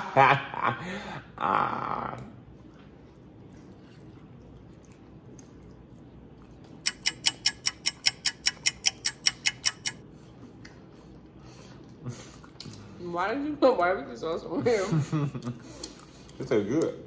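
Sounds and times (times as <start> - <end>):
rapid even ticking: 6.8 - 10.0.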